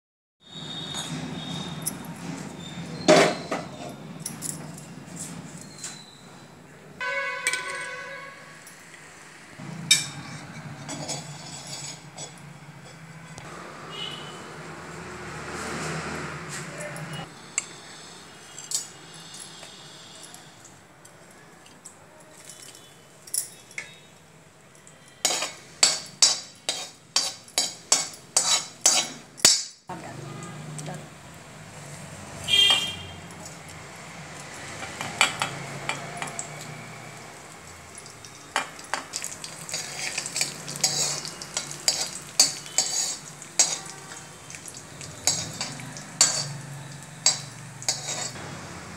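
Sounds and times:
metal spoon scraping seeds in oil: 10.2s - 13.3s, 25.0s - 29.3s, 38.0s - 48.4s
metal wok knocking and clanging: 25.2s - 29.7s, 34.8s - 36.4s, 38.2s - 43.9s, 45.0s - 48.6s.

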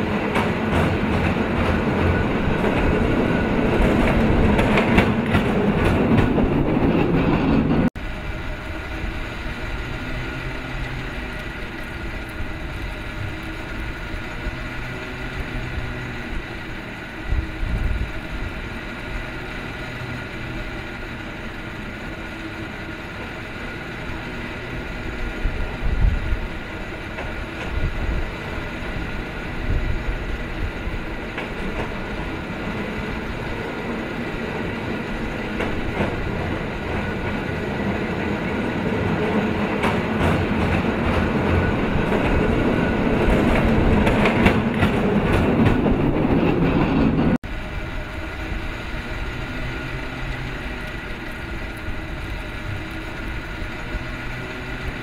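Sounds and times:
cable car rails clattering: 0.0s - 7.9s, 17.8s - 47.4s.

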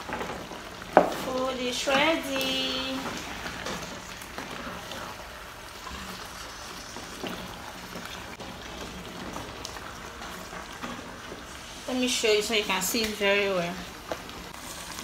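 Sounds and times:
porridge bubbling in a pot: 0.0s - 15.0s.

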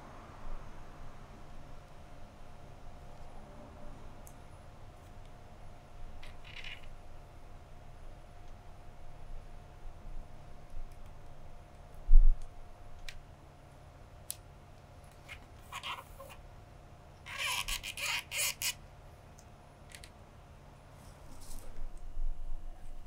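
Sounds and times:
cane strands rustling through weave: 20.9s - 22.2s.

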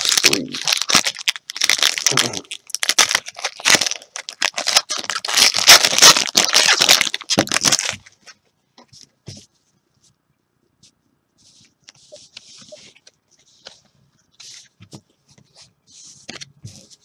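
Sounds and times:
wrapper tearing and crinkling: 0.0s - 8.0s.

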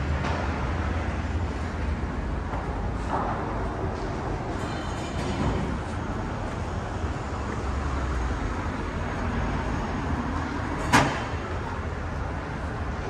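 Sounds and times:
cars passing: 0.0s - 13.0s
road noise rumble: 0.0s - 13.0s.

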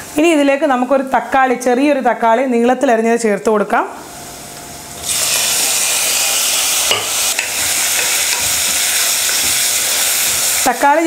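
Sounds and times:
loud sizzle of frying: 5.0s - 11.0s
wooden spatula knocking pan: 6.9s - 10.5s.

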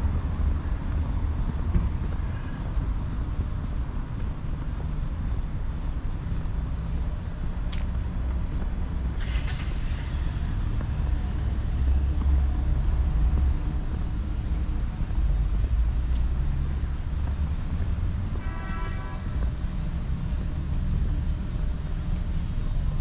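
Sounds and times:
cars passing low rumble: 0.0s - 23.0s.

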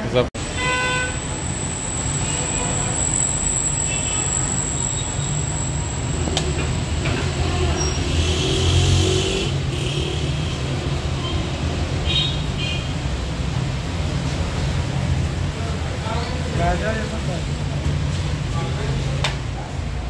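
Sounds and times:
low traffic rumble: 0.0s - 20.0s
thin high whine: 0.4s - 8.0s.

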